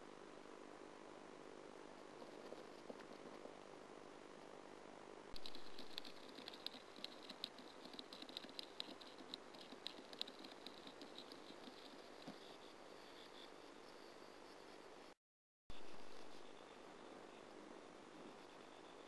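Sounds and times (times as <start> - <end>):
bird scratchy ticks: 5.4 - 14.8.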